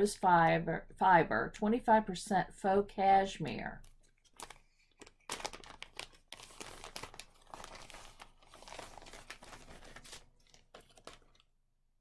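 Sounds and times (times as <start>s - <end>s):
plastic bag crinkling: 3.8s - 11.5s.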